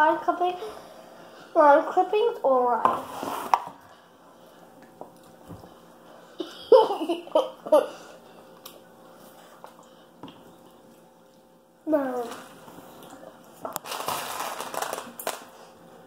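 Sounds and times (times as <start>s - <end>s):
girl making wordless sounds: 11.8s - 12.4s.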